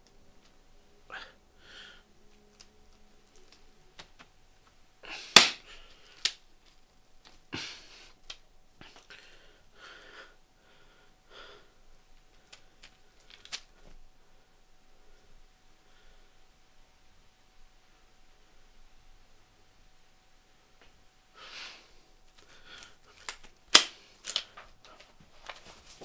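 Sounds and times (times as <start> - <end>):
stretchy strip snapping: 5.3 - 7.4, 12.4 - 13.7, 22.3 - 24.6
soft rustling: 22.0 - 26.0.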